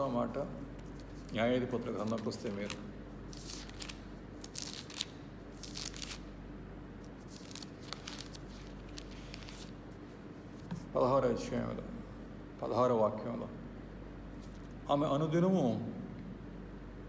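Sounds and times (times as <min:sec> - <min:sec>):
low electrical hum: 0:00.0 - 0:17.0
paper pages rustling: 0:00.8 - 0:06.2, 0:07.0 - 0:10.9.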